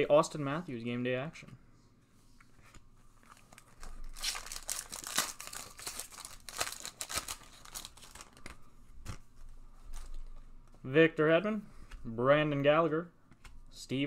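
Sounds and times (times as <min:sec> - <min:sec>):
foil wrapper crinkling and tearing: 0:03.4 - 0:08.5.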